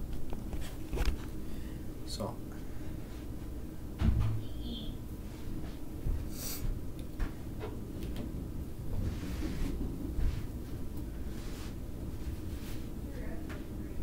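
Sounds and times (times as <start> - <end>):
low steady rumble: 6.8 - 14.0.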